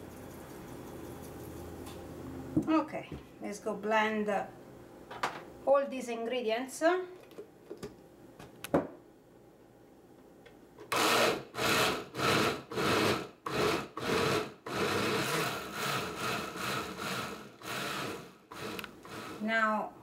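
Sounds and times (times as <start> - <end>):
blender chopping vegetables: 10.9 - 19.6.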